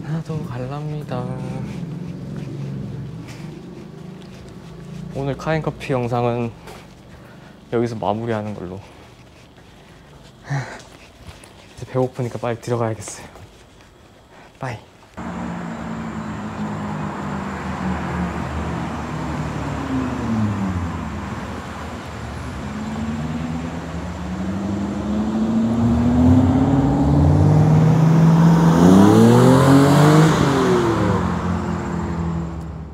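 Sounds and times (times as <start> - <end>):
cars accelerating and passing: 0.0 - 7.7, 15.2 - 32.9.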